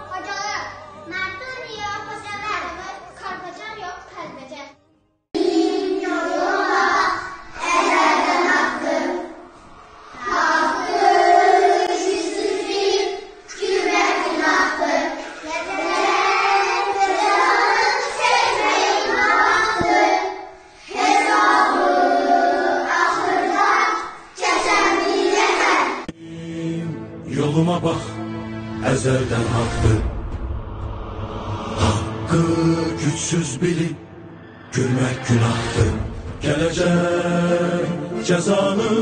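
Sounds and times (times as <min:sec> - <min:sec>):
children singing in unison: 0:05.4 - 0:26.2, 0:36.4 - 0:39.0.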